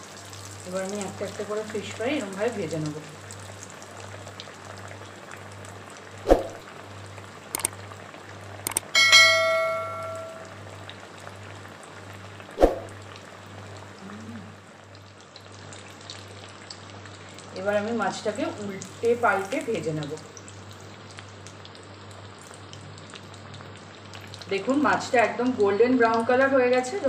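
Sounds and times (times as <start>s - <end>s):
fish sizzling in hot oil: 0.0s - 8.6s, 14.7s - 27.0s
clicks: 8.7s - 8.9s
bell-like chime: 9.0s - 10.6s.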